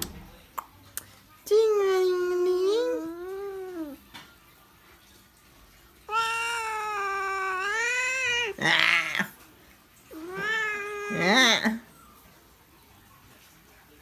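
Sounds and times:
cat harsh rasping cry: 6.1s - 9.4s, 10.1s - 11.8s
cat meowing: 6.1s - 9.4s, 10.1s - 12.2s.

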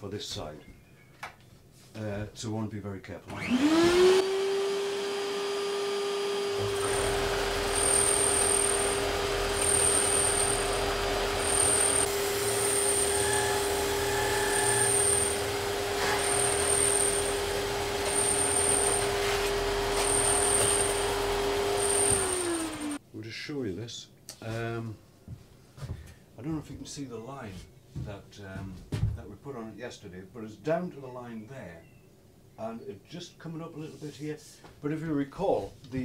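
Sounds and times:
machine whine: 3.4s - 23.0s
low grinding rumble of sanding: 6.3s - 23.0s.

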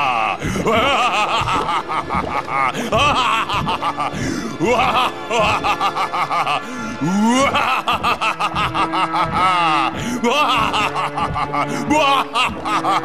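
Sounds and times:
background music: 0.0s - 13.0s
cartoon monster evil laugh: 7.3s - 13.0s.

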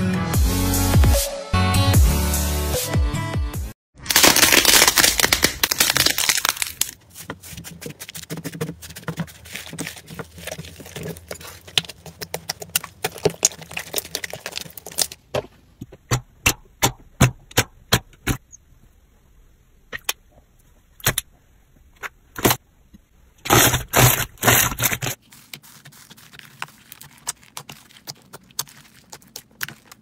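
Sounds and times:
slime crackling and crunching: 4.0s - 15.3s, 23.5s - 30.0s.

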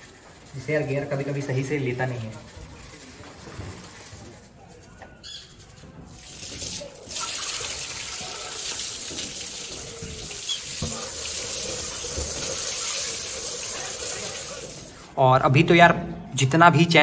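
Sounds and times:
hose water spraying and splashing: 6.1s - 15.1s.

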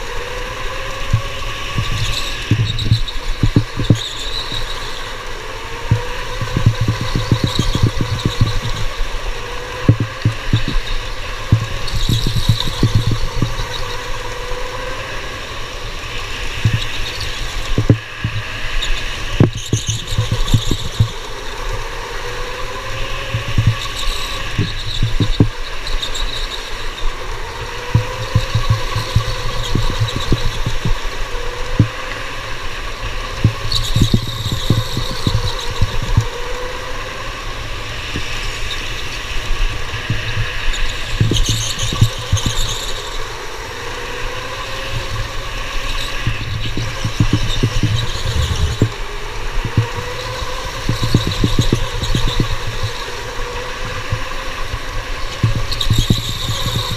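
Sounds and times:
electric motor whine: 0.0s - 56.9s
wind and chassis rumble: 0.0s - 56.9s
tyres squealing: 1.6s - 5.0s.

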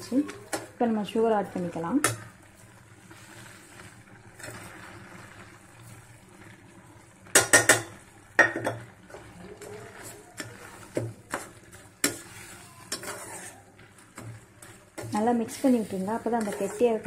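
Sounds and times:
metal spoon knocking on pan: 7.3s - 8.8s.

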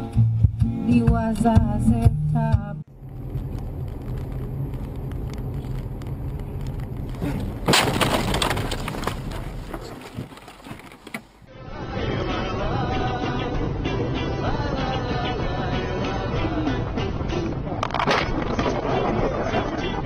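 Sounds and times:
car cabin noise: 1.0s - 11.5s
loud crash with breaking: 7.6s - 10.6s.

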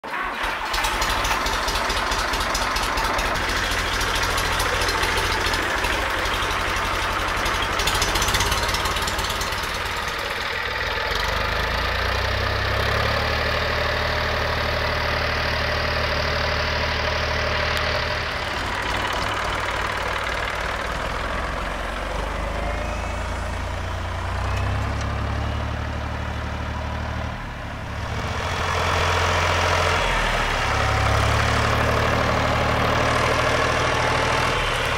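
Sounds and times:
tractor diesel engine idling: 0.0s - 34.9s.

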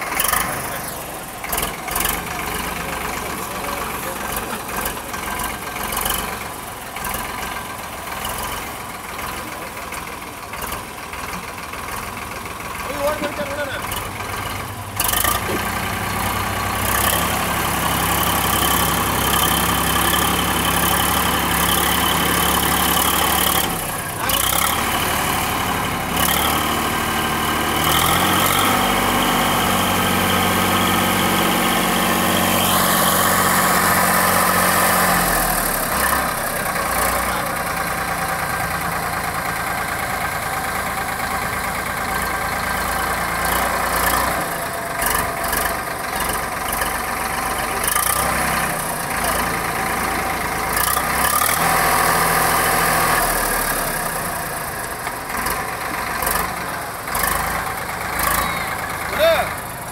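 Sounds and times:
backhoe digging and dumping soil: 0.0s - 59.8s
tractor diesel engine running: 0.0s - 59.9s.

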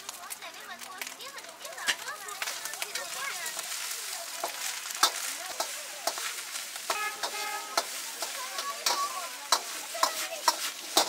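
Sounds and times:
eggs sizzling in a wok: 0.0s - 11.0s
metal ladle scraping a wok: 5.0s - 11.0s.

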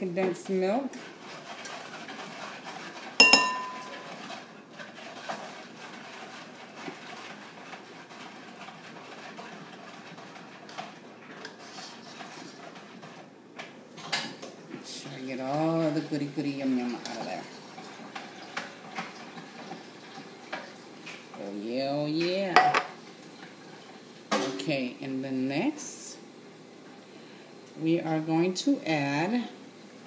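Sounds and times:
spatula scraping a can: 1.1s - 13.2s
metallic clink of tin can: 3.2s - 4.1s.

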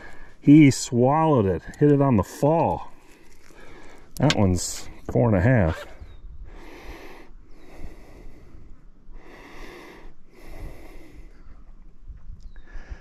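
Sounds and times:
man breathing heavily: 3.0s - 4.2s, 6.4s - 11.7s, 12.6s - 13.0s.

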